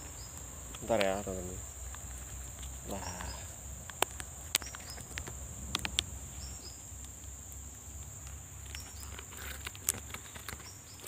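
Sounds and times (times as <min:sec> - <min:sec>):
insects droning: 0:00.0 - 0:11.0
sharp clicks: 0:00.0 - 0:11.0.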